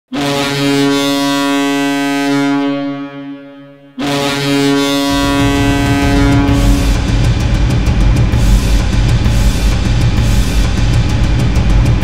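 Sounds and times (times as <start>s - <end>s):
deep goal horn blasts: 0.1s - 9.0s
heavy rock music: 4.8s - 12.0s.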